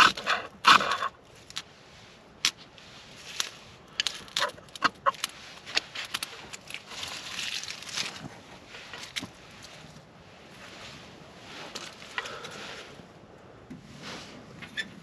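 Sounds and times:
knife scraping ferro rod: 0.0 - 1.2
wood shavings crackling: 3.0 - 12.9.

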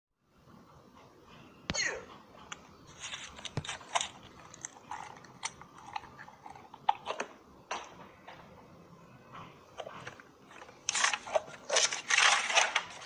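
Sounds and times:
person chewing crunchy food: 2.9 - 7.3.

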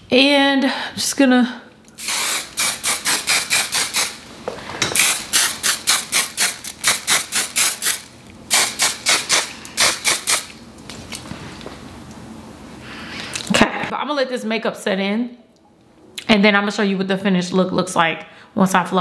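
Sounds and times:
hairspray hissing bursts: 2.0 - 4.2, 5.0 - 10.6.

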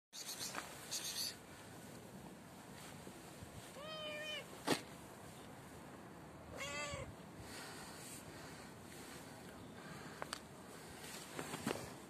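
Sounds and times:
cat meowing: 3.7 - 4.5, 6.5 - 7.1.

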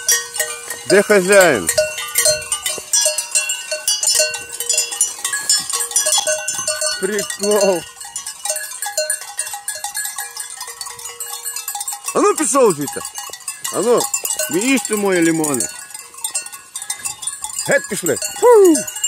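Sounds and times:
sheep bells clinking: 0.0 - 19.0.

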